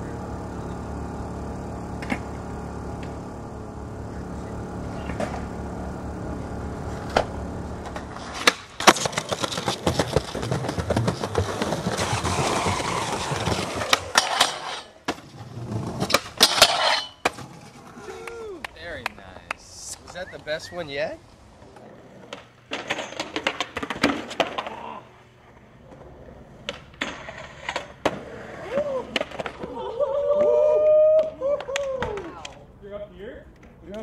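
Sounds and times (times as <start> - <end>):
low hum: 0.0 - 8.9
skateboard wheels rolling on pavement: 0.0 - 32.7
skateboard clacks and impacts: 7.0 - 17.8, 22.2 - 24.9, 25.9 - 29.8.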